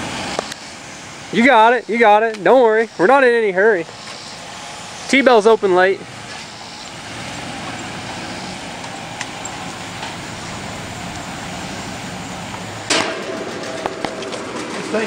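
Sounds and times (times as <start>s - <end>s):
truck engine running slowly: 2.8s - 15.0s
loud knock: 12.9s - 14.9s.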